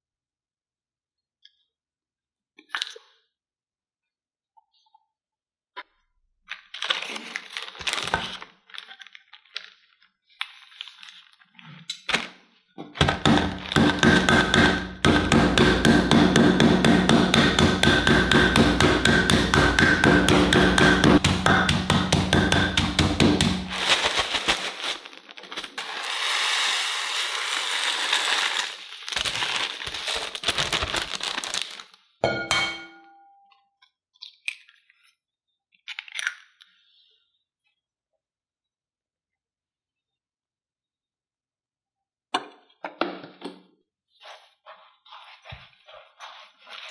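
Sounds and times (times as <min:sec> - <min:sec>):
noodles crunching in plastic bag: 0:06.6 - 0:11.6, 0:13.6 - 0:14.2, 0:23.4 - 0:32.0
crumbs rustling into bowl: 0:23.4 - 0:32.0, 0:44.2 - 0:46.9.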